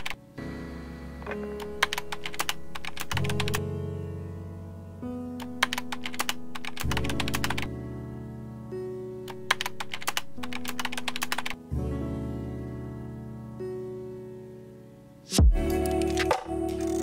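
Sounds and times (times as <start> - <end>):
soft background music chords: 0.0 - 17.0
keyboard keystroke clicks: 5.4 - 7.7.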